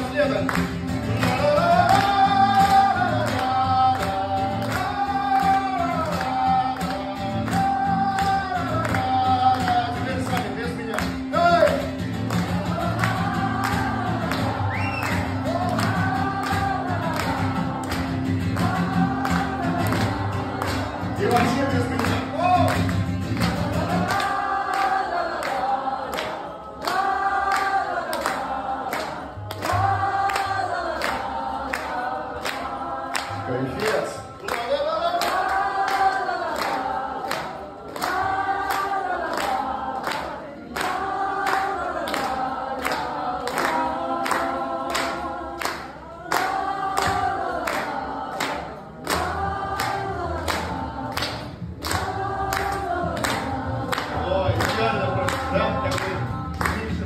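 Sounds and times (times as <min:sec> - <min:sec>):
strummed acoustic guitar: 0:00.0 - 0:25.4
group singing together: 0:00.0 - 0:57.0
hand claps: 0:00.0 - 0:57.0.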